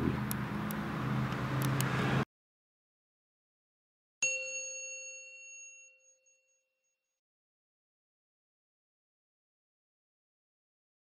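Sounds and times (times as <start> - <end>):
chime ringing: 4.2 - 6.8.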